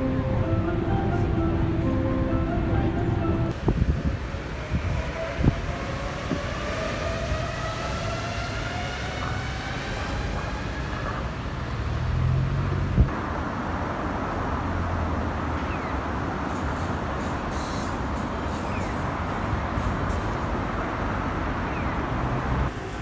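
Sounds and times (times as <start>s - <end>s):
monorail train electric whine: 0.0s - 11.4s
street traffic: 0.0s - 23.0s.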